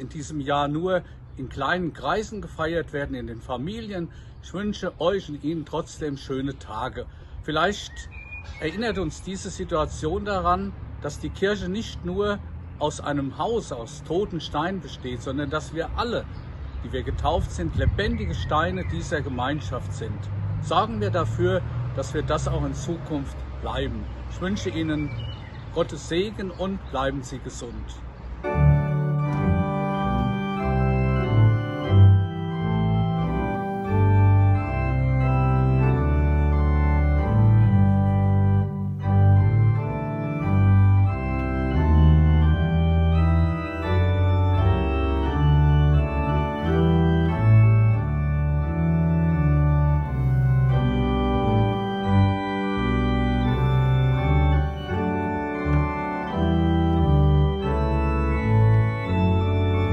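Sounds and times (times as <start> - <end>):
electronic organ chords: 28.4 - 59.9.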